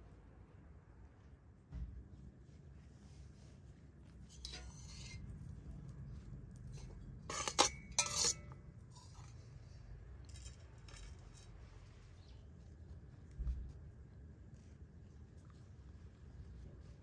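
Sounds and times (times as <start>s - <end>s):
metal spoon clinking on bowl: 4.3s - 5.5s, 6.6s - 9.4s.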